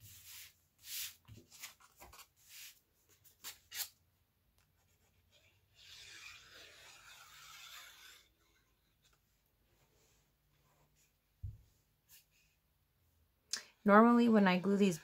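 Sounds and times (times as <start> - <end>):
paper sliding against paper: 0.0 - 2.8, 5.8 - 8.6.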